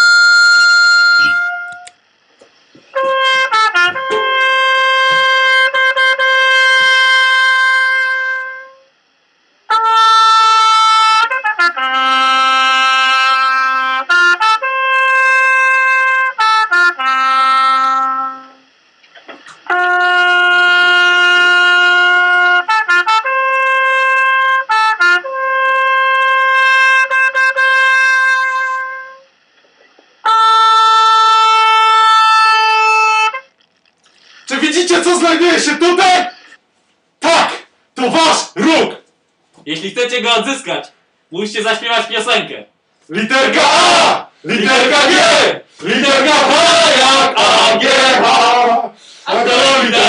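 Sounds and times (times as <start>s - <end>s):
brass horn blowing: 0.0s - 2.0s, 2.9s - 9.0s, 9.7s - 18.7s, 19.6s - 29.3s, 30.2s - 33.6s, 43.3s - 50.0s.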